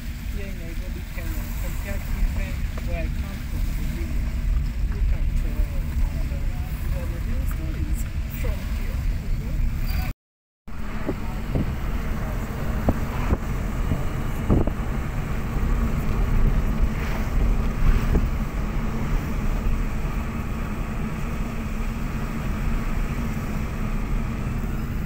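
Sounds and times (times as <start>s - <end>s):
road and engine rumble: 0.0s - 25.0s
wind noise: 10.7s - 25.0s.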